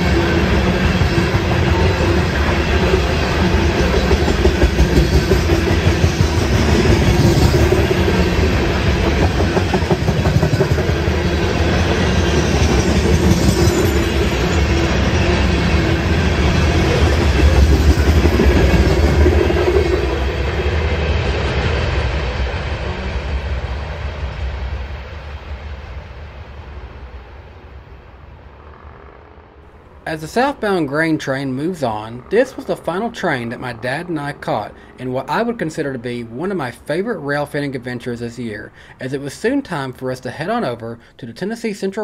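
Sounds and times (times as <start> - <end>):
train wheels clattering over rails: 0.0 - 20.6.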